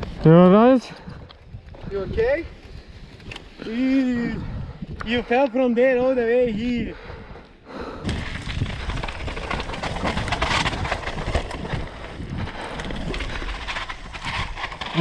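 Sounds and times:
bike rattling over rough ground: 0.0 - 15.0
wind buffeting microphone: 0.8 - 15.0
rumble: 6.9 - 15.0.

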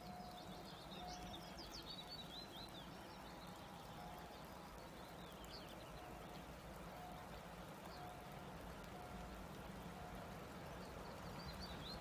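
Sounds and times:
birds twittering: 0.0 - 6.4, 10.7 - 12.0.

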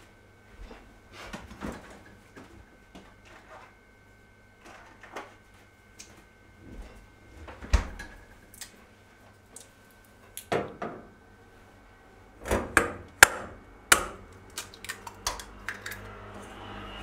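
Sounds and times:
egg cracking: 14.3 - 16.1.

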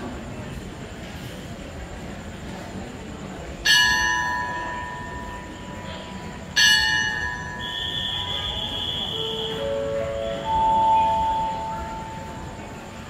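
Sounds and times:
metal bell ringing: 3.7 - 8.6.

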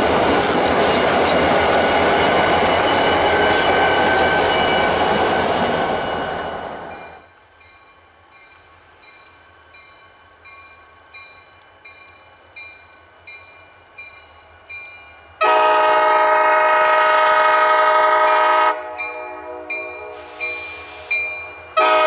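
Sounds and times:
locomotive air horn: 15.4 - 21.2, 21.8 - 22.0.

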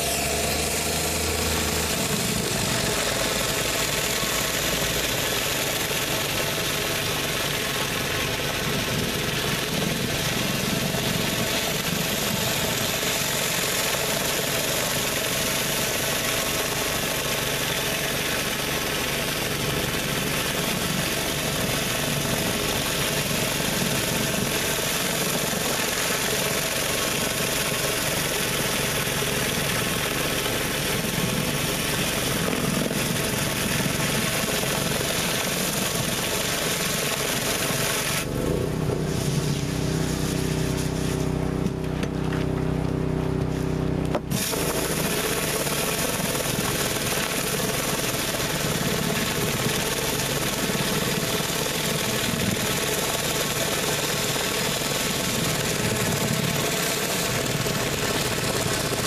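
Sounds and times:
pressure washer engine running: 0.0 - 59.0
surface cleaner spraying hiss: 39.0 - 41.6.

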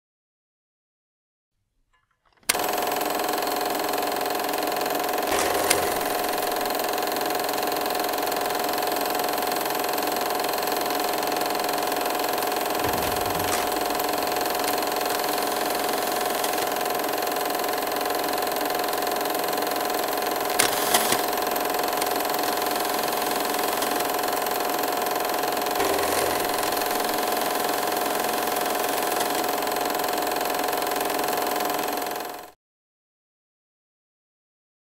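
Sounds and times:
film projector running: 2.4 - 32.6
projector clicks: 5.3 - 6.8, 12.6 - 16.9, 20.6 - 24.2.

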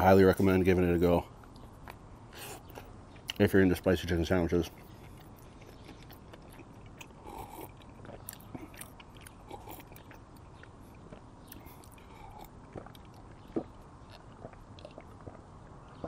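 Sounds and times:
mouth clicks: 4.7 - 16.0
person gulping water: 4.8 - 10.3, 10.9 - 16.0.

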